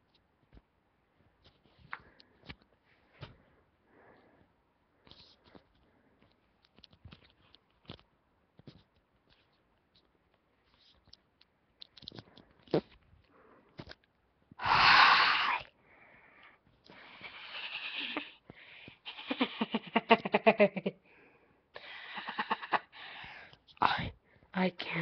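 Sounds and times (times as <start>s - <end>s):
person's breathy vocal sounds: 14.6s - 15.7s, 17.0s - 19.5s.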